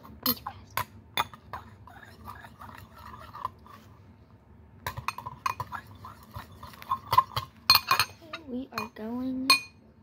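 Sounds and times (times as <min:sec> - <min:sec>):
knife clinking and scraping a dish: 0:01.2 - 0:03.9, 0:04.9 - 0:09.8.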